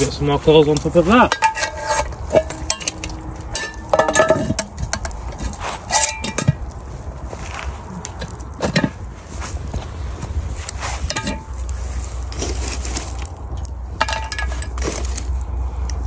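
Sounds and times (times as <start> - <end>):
cast iron pot clanking: 0.0 - 6.9, 8.0 - 9.2, 10.7 - 15.3.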